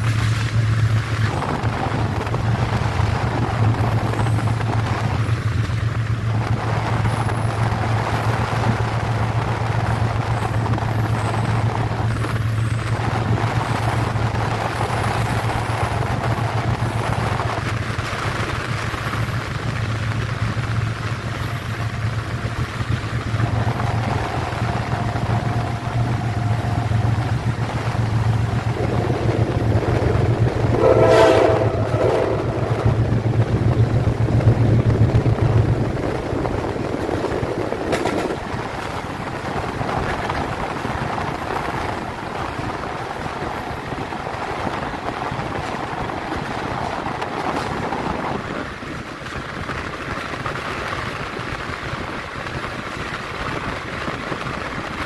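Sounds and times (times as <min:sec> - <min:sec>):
train low hum: 0:00.0 - 0:55.0
wheels rumbling on rails: 0:00.0 - 0:55.0
train horn: 0:23.4 - 0:33.0.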